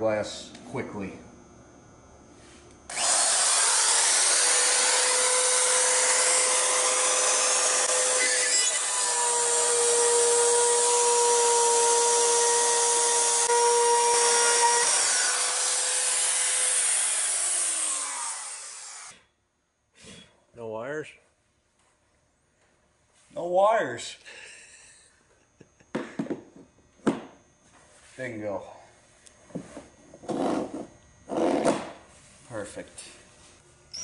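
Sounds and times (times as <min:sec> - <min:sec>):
spiral saw motor whine: 0:02.9 - 0:19.3.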